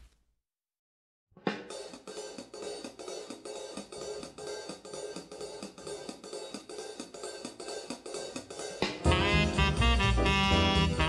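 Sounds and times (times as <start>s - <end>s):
jazz drum kit swing rhythm: 1.6s - 11.0s
saxophone: 9.0s - 11.0s.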